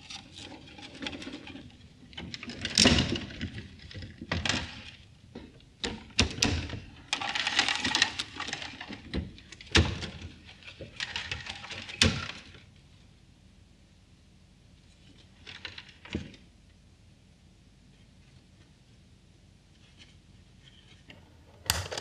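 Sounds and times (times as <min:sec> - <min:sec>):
plastic machine clattering: 0:21.1 - 0:22.0.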